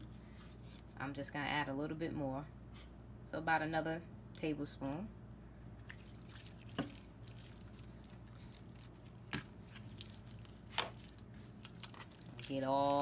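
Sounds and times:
wet squelching of hands on meat: 5.8s - 13.0s.

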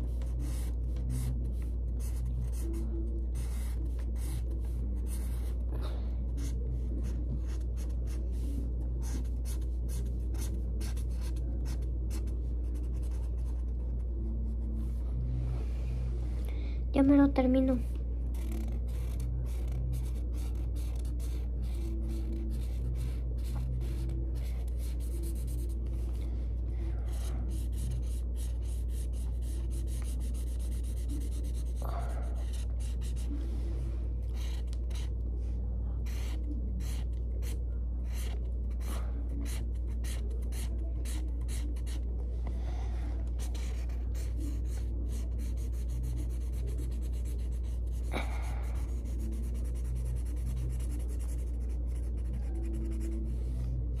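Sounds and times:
marker rubbing on paper: 0.0s - 5.6s, 6.4s - 14.0s, 18.4s - 25.8s, 27.1s - 33.3s, 34.4s - 35.1s, 36.0s - 42.0s, 43.4s - 48.1s, 48.7s - 53.3s
low hum: 0.0s - 54.0s.

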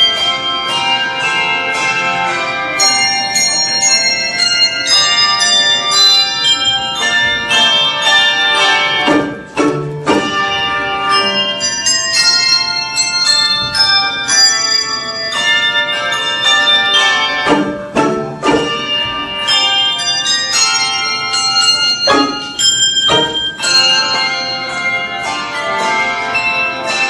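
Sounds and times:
handbell choir playing: 0.0s - 27.0s.

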